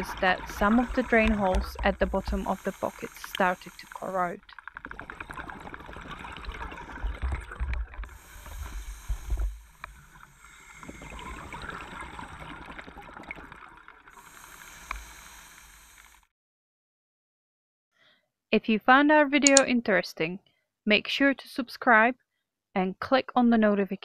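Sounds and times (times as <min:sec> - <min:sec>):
regulator breathing hiss: 0:00.0 - 0:04.5, 0:08.0 - 0:12.9, 0:14.1 - 0:16.3
bubbles gurgling: 0:00.0 - 0:16.2.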